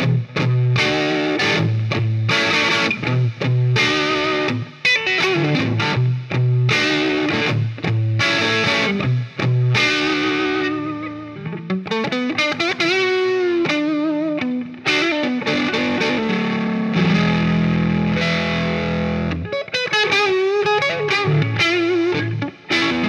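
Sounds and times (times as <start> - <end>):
electric guitar lead lines: 0.0 - 23.0.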